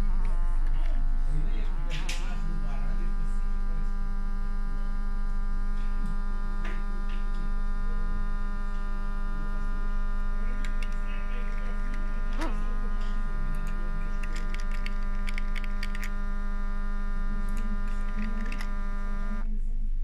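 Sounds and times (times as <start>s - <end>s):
small fan motor humming: 0.0s - 19.7s.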